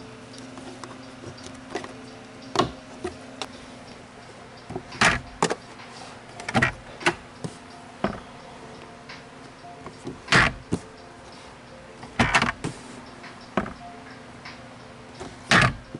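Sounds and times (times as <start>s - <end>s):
plastic glove box clicking: 6.4s - 7.2s, 10.0s - 10.8s, 12.0s - 12.7s, 15.5s - 15.9s.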